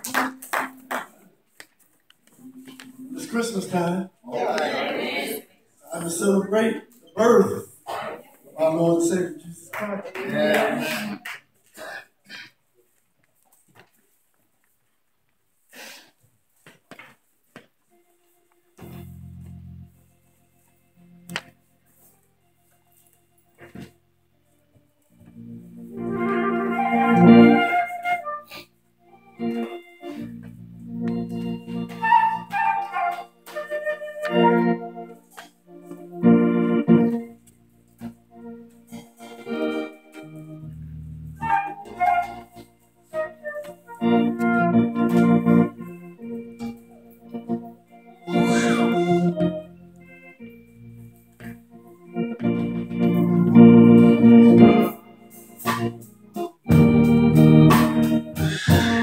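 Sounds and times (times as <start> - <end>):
organ playing chords: 0.0 - 1.2, 2.3 - 11.1, 17.8 - 59.0.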